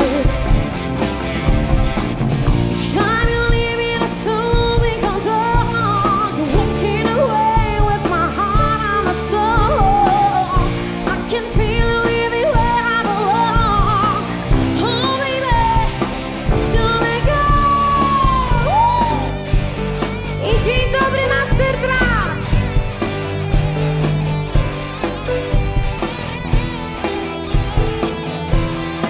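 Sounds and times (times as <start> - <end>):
woman singing: 0.0 - 0.5, 2.8 - 19.4, 20.4 - 22.4
live rock band playing: 0.0 - 29.0.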